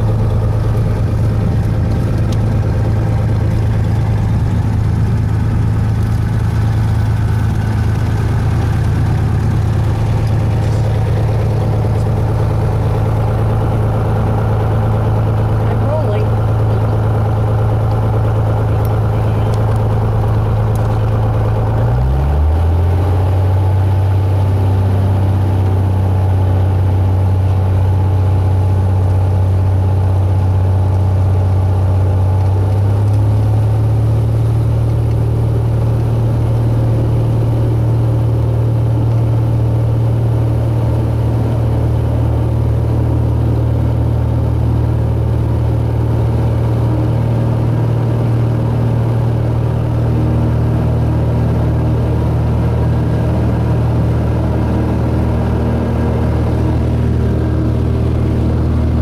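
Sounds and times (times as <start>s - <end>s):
aircraft engine and propeller hum: 0.0s - 59.0s.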